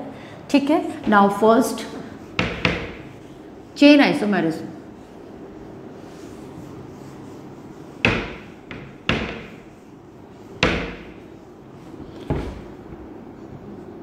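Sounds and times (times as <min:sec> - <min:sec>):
duster knocking on whiteboard: 0:02.3 - 0:03.2, 0:08.0 - 0:09.8, 0:10.5 - 0:11.4, 0:12.1 - 0:12.7.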